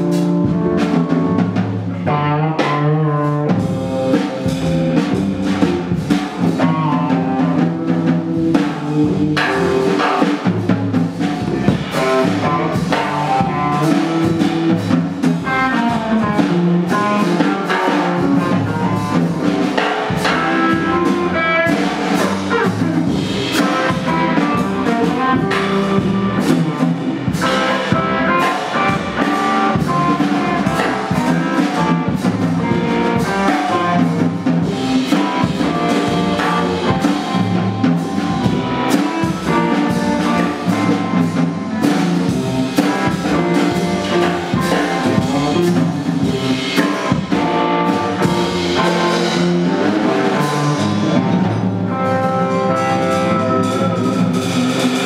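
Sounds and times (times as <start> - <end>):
instrumental music with drums: 0.0 - 55.0.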